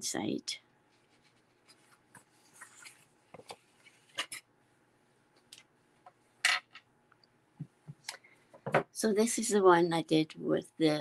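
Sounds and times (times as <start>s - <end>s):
paper rustling: 1.0s - 4.4s.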